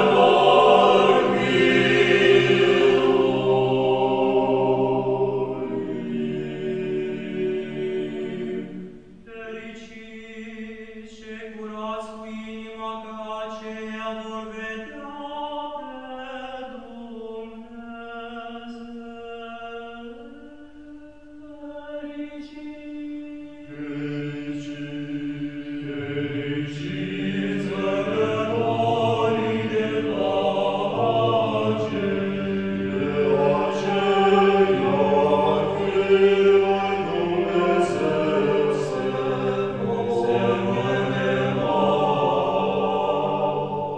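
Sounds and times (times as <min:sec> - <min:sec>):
voices chanting in harmony: 0:00.0 - 0:43.9.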